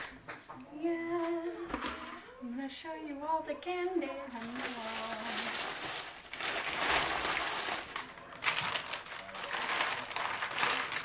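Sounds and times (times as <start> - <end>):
plastic bags rustling: 4.1 - 11.0.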